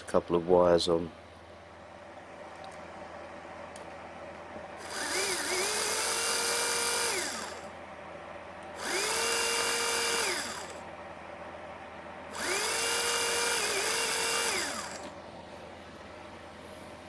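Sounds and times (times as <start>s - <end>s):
small electric motor whining: 4.8s - 7.7s, 8.8s - 10.8s, 12.3s - 15.2s.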